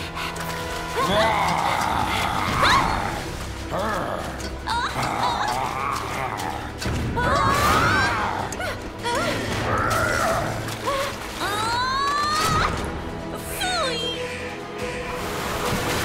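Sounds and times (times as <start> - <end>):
splash into thick sludge: 14.9 - 16.0.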